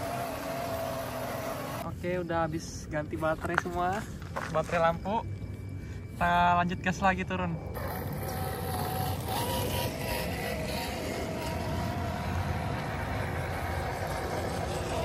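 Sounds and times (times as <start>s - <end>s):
rc car motors whining: 0.0s - 1.9s, 7.6s - 15.0s.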